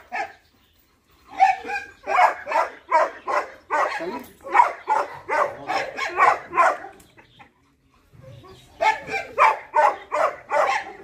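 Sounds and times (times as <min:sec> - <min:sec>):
dog barking: 0:01.4 - 0:07.0, 0:08.8 - 0:11.0.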